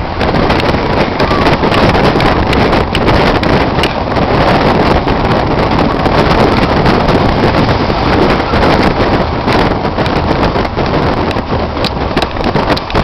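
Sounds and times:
road and engine noise: 0.0 - 13.0
wind buffeting microphone: 0.0 - 13.0.

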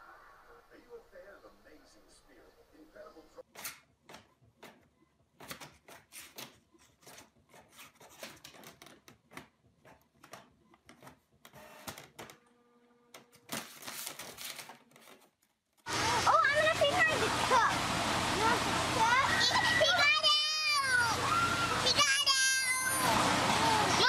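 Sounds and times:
printer whirring rush: 15.9 - 24.0.

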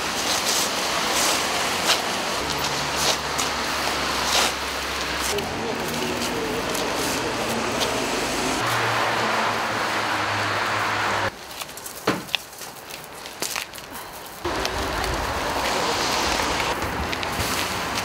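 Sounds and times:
boots walking on gritted pavement: 0.0 - 8.9, 11.3 - 18.0
street traffic engine hum: 0.0 - 18.0.

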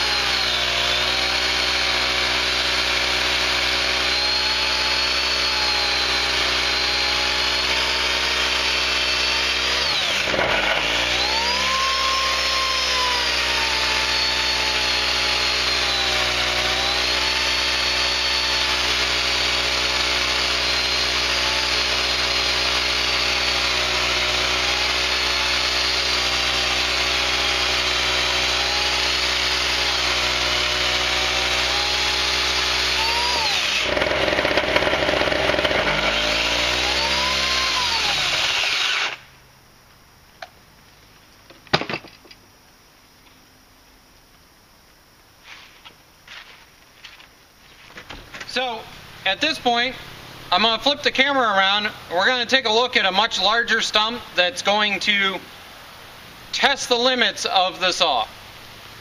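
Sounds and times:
electric chainsaw cutting log: 0.0 - 39.3
portable generator running: 0.0 - 39.3.

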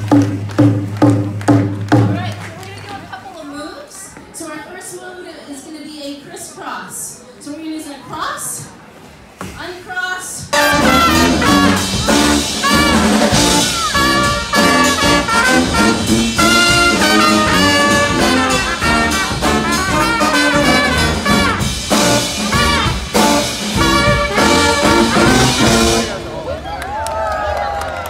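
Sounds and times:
brass band playing: 10.5 - 26.5.

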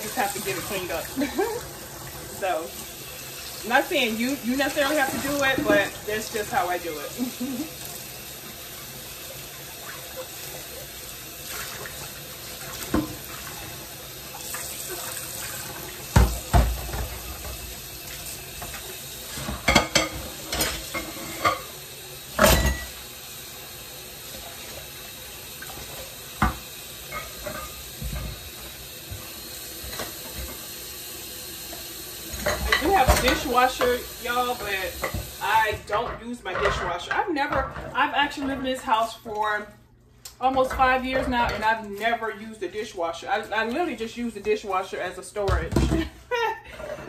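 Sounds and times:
tap running into a sink: 11.5 - 23.0, 24.2 - 30.9, 31.6 - 35.8
dishes knocking and clinking: 16.1 - 17.6, 18.6 - 21.7, 22.4 - 23.0, 32.4 - 34.0.

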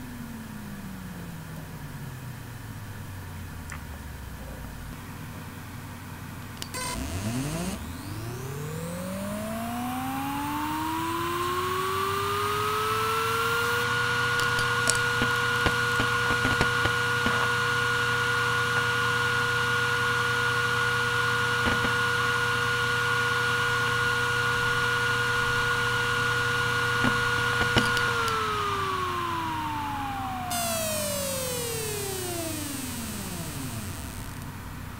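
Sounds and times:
hard drive spinning whine: 0.0 - 34.9
hard drive head clicks: 27.0 - 28.6.

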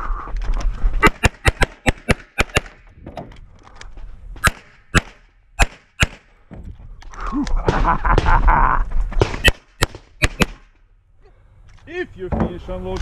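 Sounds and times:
pistol shots: 1.0 - 2.8, 4.4 - 6.2, 9.2 - 10.6.

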